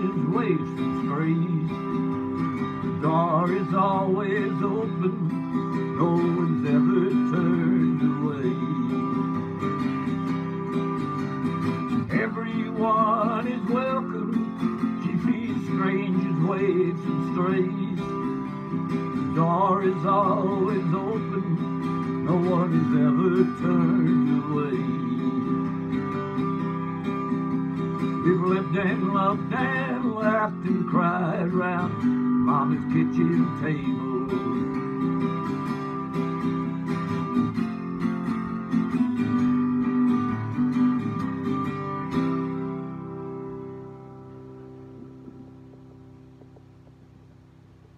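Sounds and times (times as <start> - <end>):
man singing: 0.0 - 9.9, 11.9 - 26.3, 27.8 - 35.5
acoustic guitar strumming: 0.0 - 47.9.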